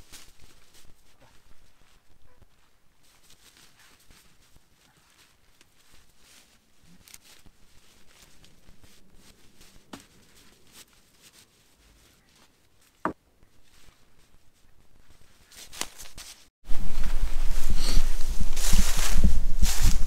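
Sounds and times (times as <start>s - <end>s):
footsteps through dry leaves: 0.0s - 13.0s, 15.2s - 20.0s
twigs cracking: 3.0s - 11.4s, 15.4s - 16.5s.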